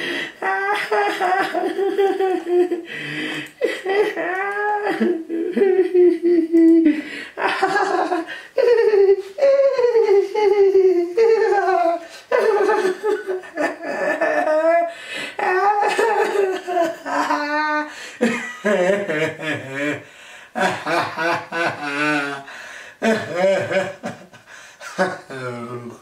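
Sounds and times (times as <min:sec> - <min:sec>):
person crying out: 0:00.4 - 0:02.6, 0:03.7 - 0:12.1, 0:13.8 - 0:18.0.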